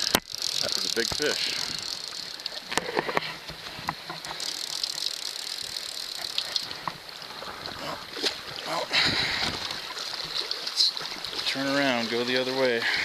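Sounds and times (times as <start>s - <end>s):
sharp clicks: 0.0s - 2.9s
stream water rushing over riffle: 4.1s - 13.0s.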